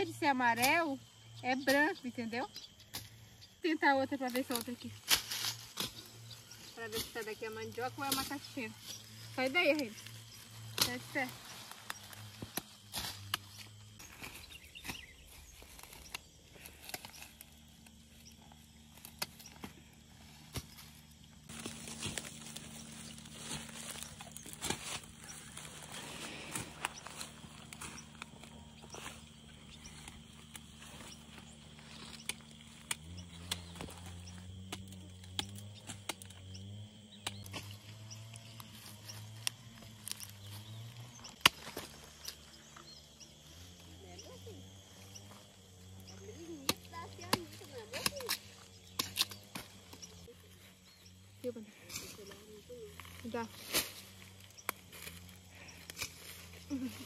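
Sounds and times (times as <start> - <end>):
plants snapping and knocking: 9.7 - 19.8, 20.4 - 29.0, 29.9 - 36.4, 37.2 - 42.4, 46.6 - 50.2, 53.7 - 56.9.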